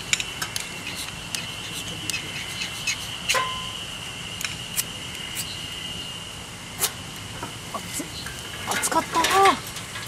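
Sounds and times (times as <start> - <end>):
ferro rod scraped with striker: 0.5 - 3.4.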